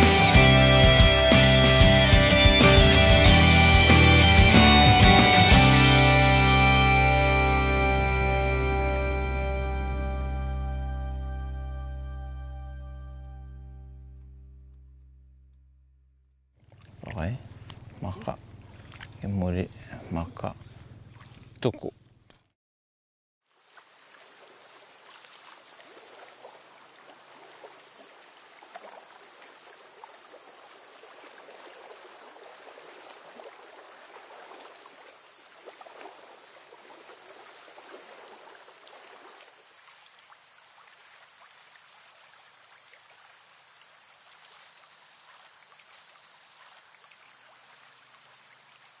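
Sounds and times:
shallow water lapping and trickling: 16.6 - 21.7, 23.5 - 49.0.

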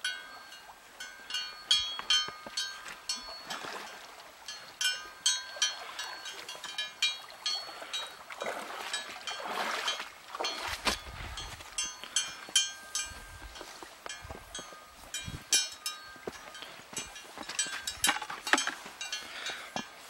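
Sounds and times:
small metal bell clinking: 11.4 - 20.0.

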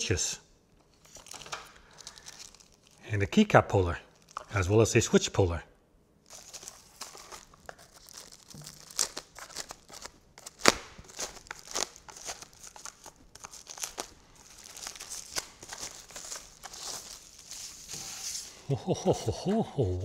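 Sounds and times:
packaging crinkling and rustling: 0.8 - 3.0, 4.1 - 4.6, 6.2 - 18.6.

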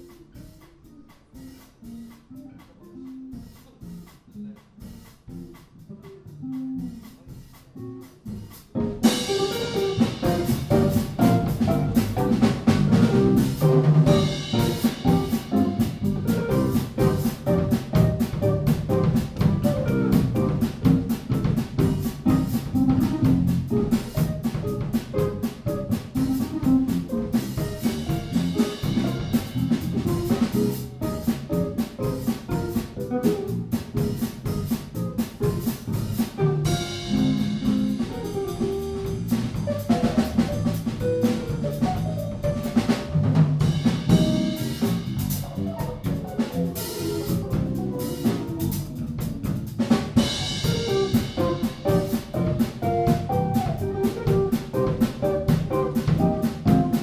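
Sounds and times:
drums and cymbals: 0.0 - 57.0
jazz trio playing: 0.0 - 57.0.

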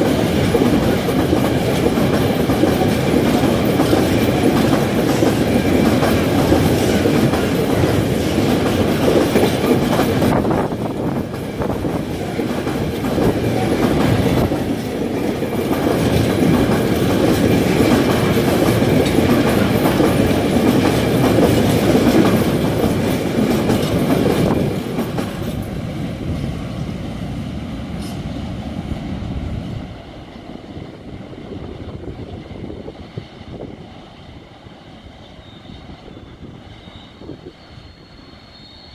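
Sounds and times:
freight train wheel clatter: 0.0 - 38.9.

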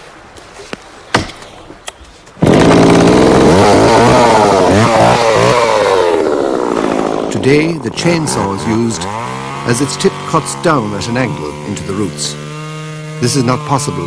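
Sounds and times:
axe chopping into roots: 1.1 - 1.4
chainsaw cutting: 2.4 - 14.0.

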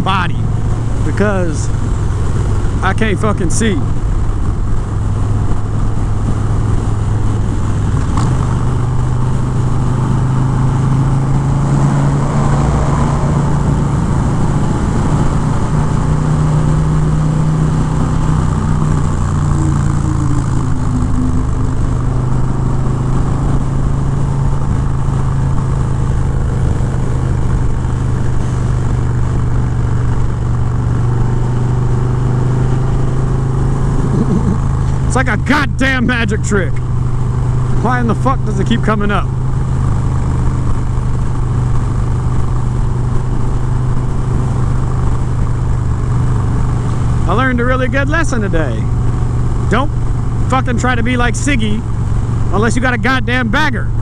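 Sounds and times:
motorcycle engine cruising: 0.0 - 54.0.

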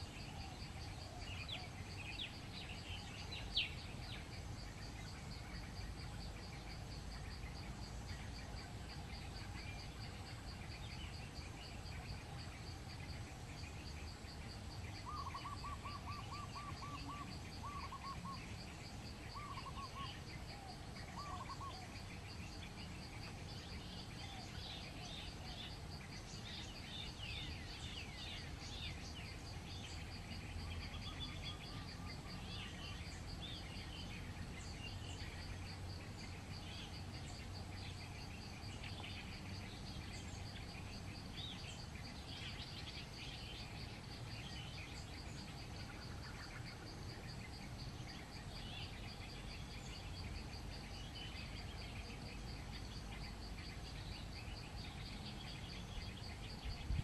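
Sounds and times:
pulsing insect drone: 0.0 - 57.0
small birds chirping: 0.0 - 57.0
doves cooing: 15.0 - 18.5, 19.4 - 22.0.

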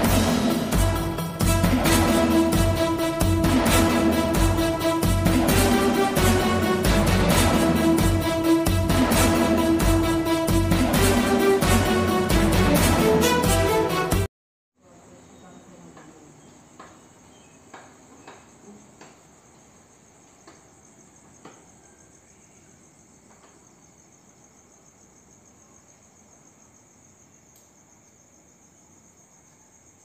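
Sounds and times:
crickets chirring: 14.8 - 30.0.

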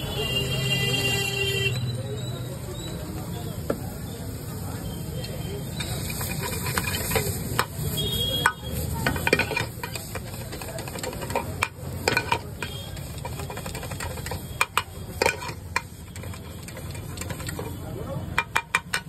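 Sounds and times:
food sizzling: 2.8 - 19.0
metal spatula scraping iron pan: 5.8 - 19.0.

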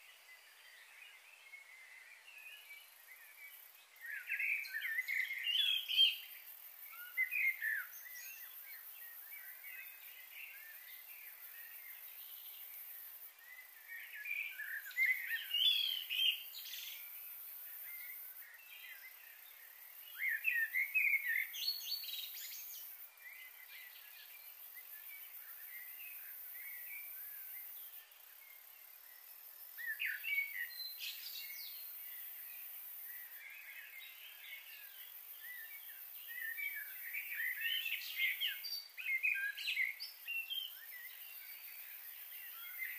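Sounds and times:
faint steady hiss: 0.0 - 42.9
small birds chirping: 0.0 - 42.9.

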